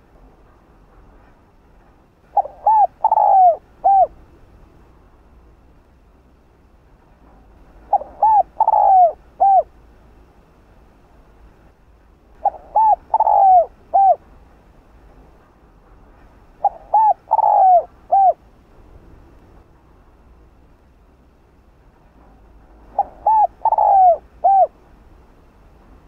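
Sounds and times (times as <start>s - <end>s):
dove cooing: 2.3s - 4.2s, 7.9s - 9.7s, 12.4s - 14.2s, 16.6s - 18.4s, 22.8s - 24.8s.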